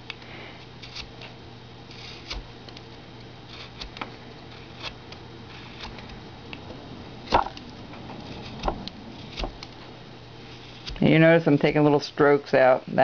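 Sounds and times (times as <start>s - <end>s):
v-tool scraping wood: 0.8s - 1.3s, 1.9s - 2.5s, 3.5s - 6.2s, 8.0s - 11.8s.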